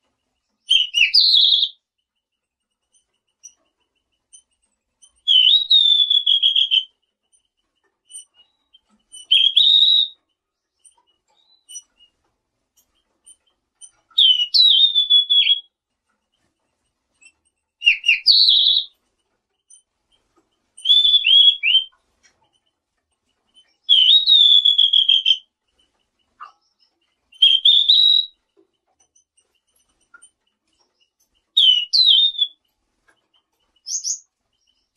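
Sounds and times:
songbird whistling: 0.6 - 1.8, 5.1 - 6.9, 8.1 - 10.2, 13.8 - 15.8, 17.2 - 18.9, 20.8 - 22.0, 23.6 - 25.5, 26.4 - 28.4, 31.5 - 32.6, 33.8 - 34.9.

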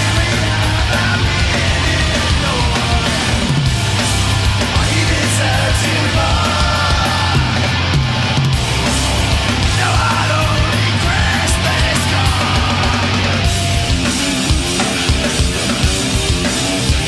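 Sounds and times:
heavy rock band playing: 0.0 - 17.0
man shouting vocals: 9.8 - 13.4.

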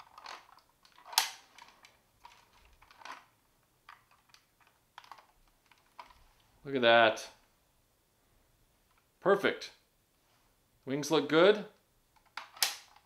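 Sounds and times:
plastic toy clicks and clacks: 0.0 - 3.3, 3.9 - 6.1, 12.2 - 13.0.

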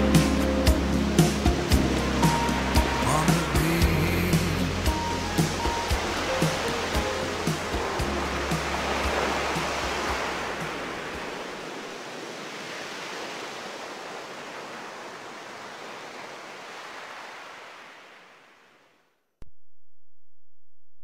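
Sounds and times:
song with bass and beat: 0.0 - 10.3
ocean surf rushing: 0.0 - 18.9.

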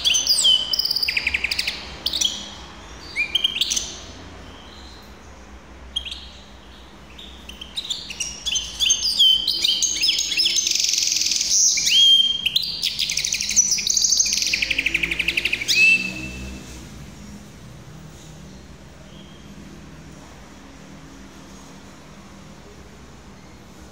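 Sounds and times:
finch singing: 0.0 - 16.7.

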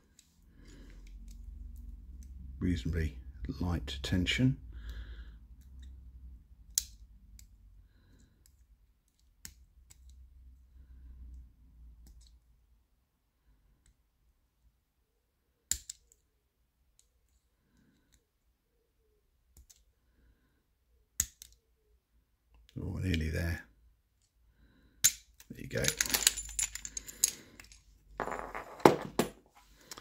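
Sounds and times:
lock picking metallic clicks: 6.6 - 7.5.

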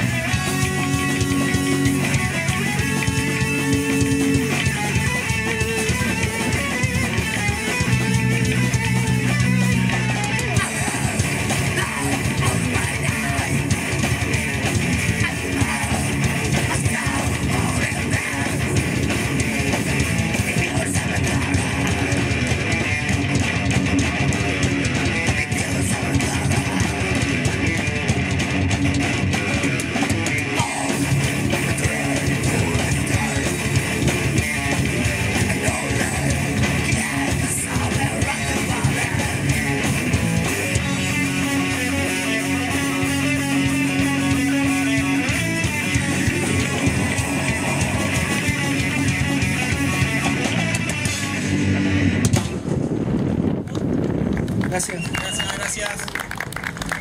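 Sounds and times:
metal band playing: 0.0 - 52.8.

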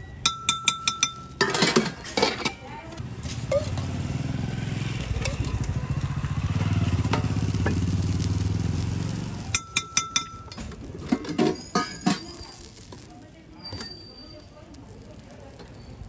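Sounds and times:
metal spatula clinking on griddle: 0.1 - 2.8, 9.5 - 16.0
vehicle engine humming: 3.0 - 13.6.

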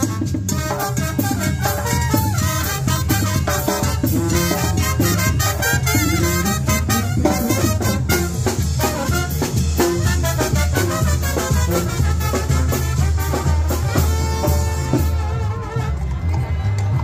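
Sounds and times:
latin band music with brass: 0.0 - 17.0.

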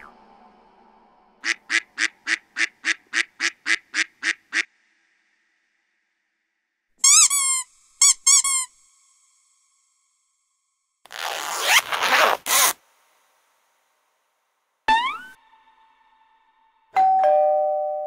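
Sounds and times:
high pitch-bending squeaks: 14.9 - 15.4.

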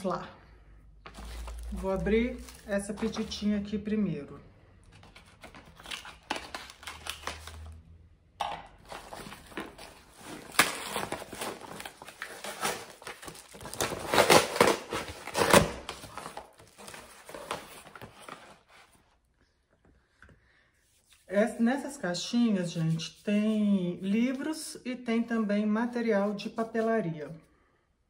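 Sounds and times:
packaging rustling and crinkling: 1.0 - 3.5, 4.8 - 7.8, 8.8 - 19.2
cardboard package tearing: 1.1 - 3.4, 5.0 - 7.8, 8.8 - 18.8.

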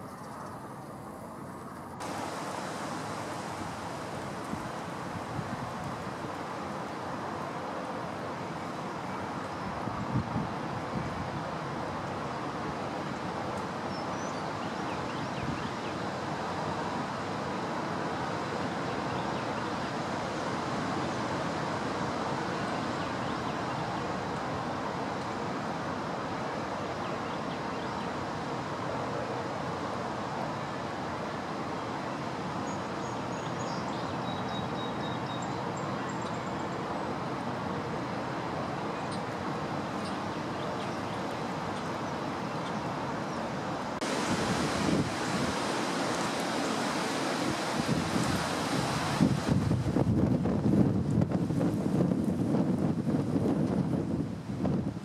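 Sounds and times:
strong wind on microphone: 2.0 - 6.4, 9.6 - 11.5, 43.6 - 55.0.

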